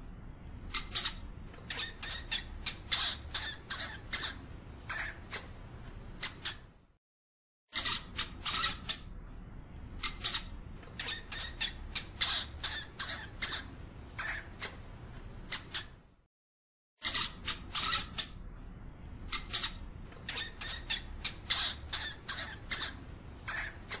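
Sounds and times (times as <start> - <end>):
hamster squeaking: 0.7 - 5.6, 6.2 - 6.7, 7.7 - 9.1, 10.0 - 16.0, 17.0 - 18.4, 19.3 - 24.0.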